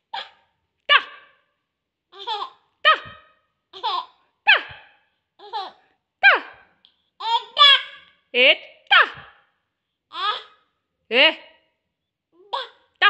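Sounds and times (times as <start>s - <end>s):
baby laughing: 2.1s - 4.8s, 5.4s - 6.6s, 7.2s - 8.1s, 10.1s - 10.5s, 12.4s - 12.8s.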